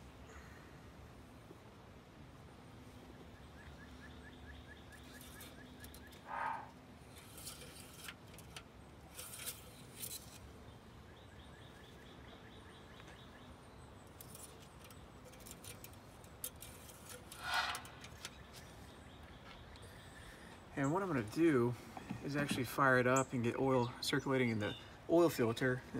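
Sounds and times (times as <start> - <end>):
bird trill and chirps: 3.3 - 6.7, 10.6 - 15.8.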